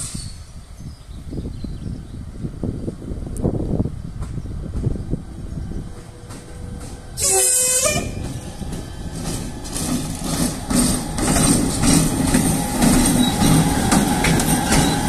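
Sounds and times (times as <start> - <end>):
train rumbling past: 0.0 - 15.0
wheels clicking over rail joints: 5.9 - 15.0
locomotive horn blast: 7.2 - 8.3.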